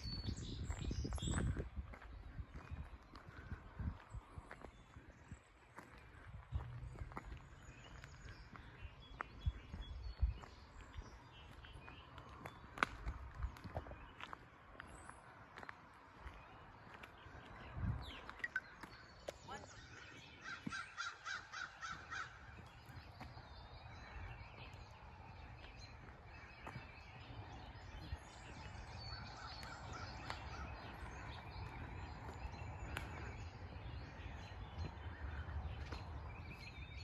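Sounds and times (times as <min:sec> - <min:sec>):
birds chirping: 0:00.0 - 0:37.0
bird harsh calls: 0:18.4 - 0:23.0.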